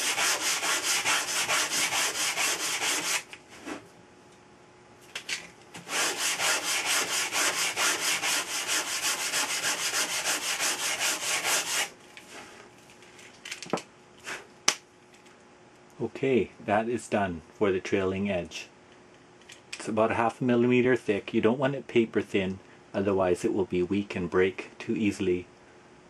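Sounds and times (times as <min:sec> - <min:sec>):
sandpaper rubbing on wood: 0:00.0 - 0:03.3, 0:05.8 - 0:11.9.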